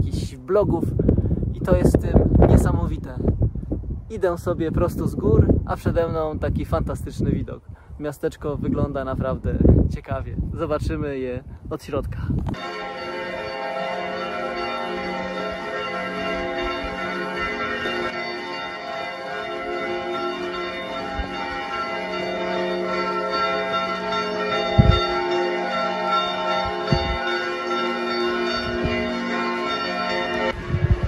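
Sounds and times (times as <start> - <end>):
church bells ringing: 12.5 - 31.0
low thumps: 19.5 - 25.6, 26.4 - 29.3.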